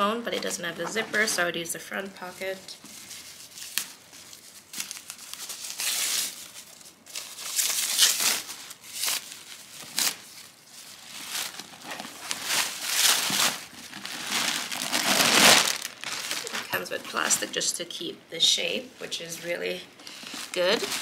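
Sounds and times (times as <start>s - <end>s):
packing wrap rustling and crinkling: 2.8s - 17.7s, 20.0s - 21.0s.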